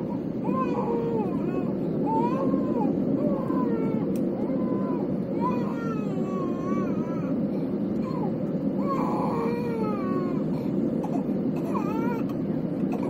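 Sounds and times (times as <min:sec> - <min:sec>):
airplane cabin roar: 0:00.0 - 0:13.0
child crying: 0:00.5 - 0:07.4.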